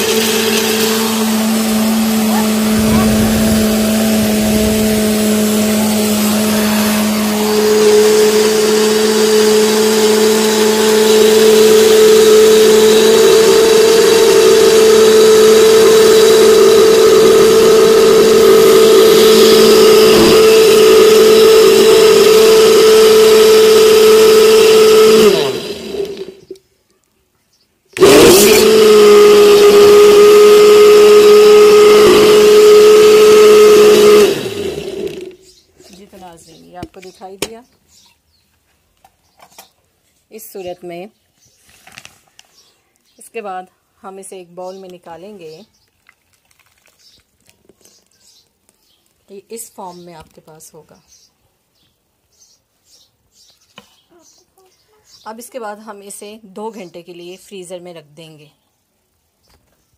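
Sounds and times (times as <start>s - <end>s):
blender motor running: 0.0s - 26.6s, 28.0s - 35.4s.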